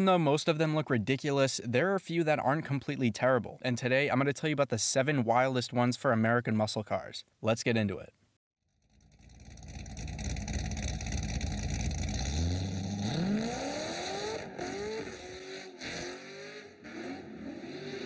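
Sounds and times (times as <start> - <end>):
vee eight exhaust rumbling and revving: 8.9 - 18.0.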